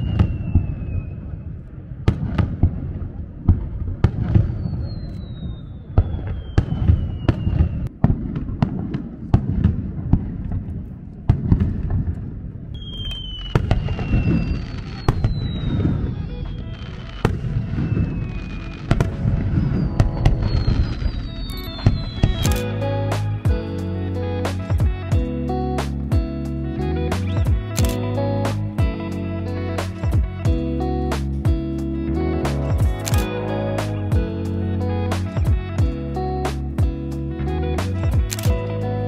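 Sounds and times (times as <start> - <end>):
falling firework whistles: 0.0 - 1.5, 4.3 - 7.9, 12.8 - 22.5
fireworks booms and crackling bangs: 0.0 - 22.7
low rumble: 13.6 - 24.0.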